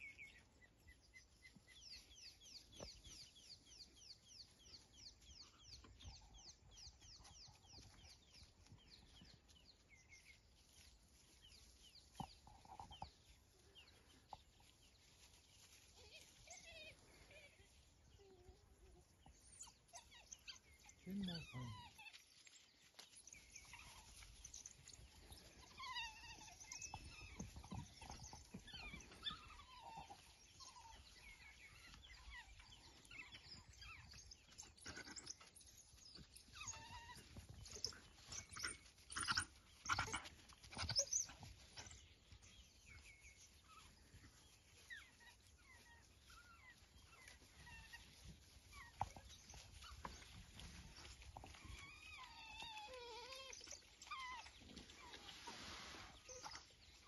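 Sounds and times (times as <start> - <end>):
wild dogs twittering calls: 19.2 - 22.5, 23.5 - 57.0.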